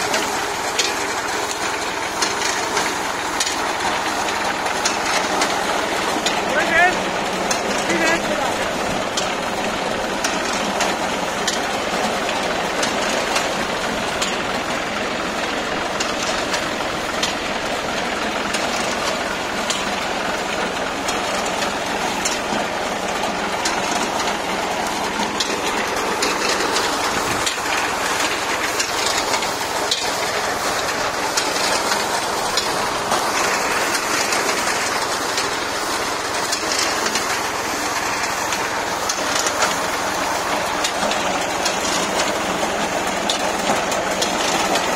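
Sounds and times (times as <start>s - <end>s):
reaper mechanical clatter: 0.0s - 44.9s
tractor engine running: 0.0s - 44.9s.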